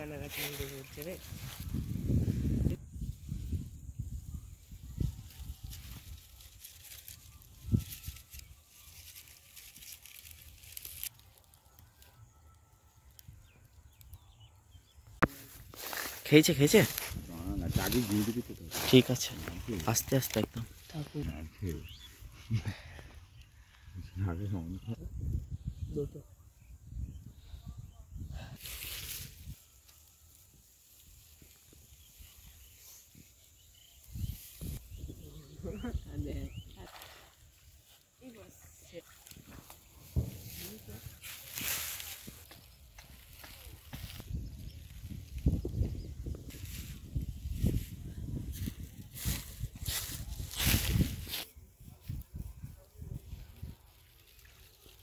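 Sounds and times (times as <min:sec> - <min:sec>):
wind rumble on microphone: 0:01.0 - 0:06.4, 0:24.8 - 0:28.6, 0:34.1 - 0:36.8, 0:43.7 - 0:54.1
dry rustling hiss: 0:04.6 - 0:11.2, 0:15.3 - 0:22.0
faint bird chirps: 0:20.8 - 0:42.8.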